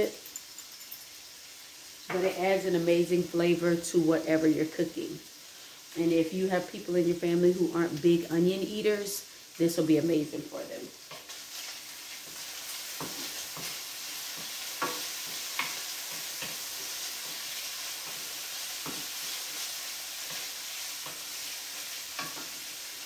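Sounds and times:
bacon sizzling in a skillet: 0.0 - 23.0
utensil clicking against pan: 13.0 - 16.7, 22.1 - 22.6.

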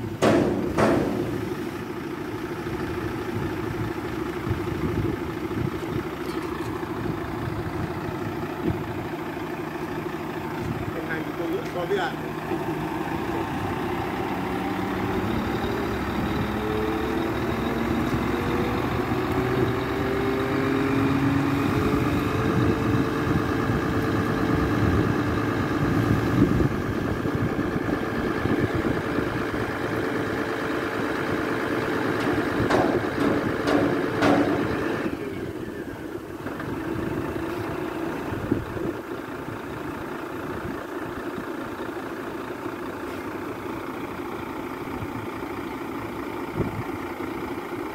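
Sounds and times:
truck engine under load: 0.0 - 47.9
metal clanks: 0.2 - 1.6, 32.2 - 35.0.

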